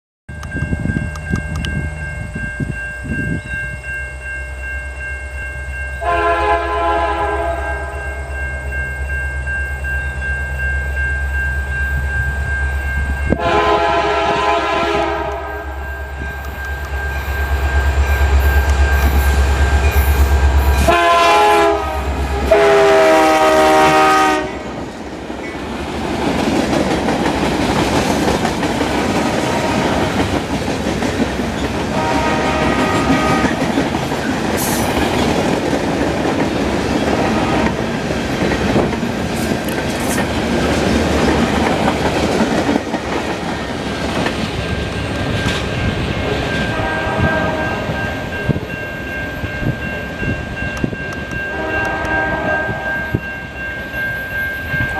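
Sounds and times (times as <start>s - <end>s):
locomotive horn: 6.0s - 8.1s, 13.3s - 15.9s, 20.8s - 24.8s, 29.3s - 30.1s, 31.8s - 33.7s, 37.1s - 37.8s, 46.3s - 48.0s, 51.5s - 53.2s
train wheels clattering over rails: 24.8s - 46.7s.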